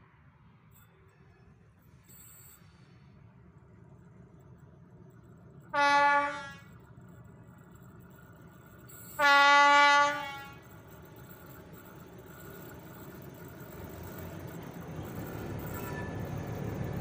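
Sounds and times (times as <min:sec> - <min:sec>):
locomotive engine: 0:00.9 - 0:17.0
train horn blasts: 0:05.7 - 0:06.7, 0:09.1 - 0:10.6.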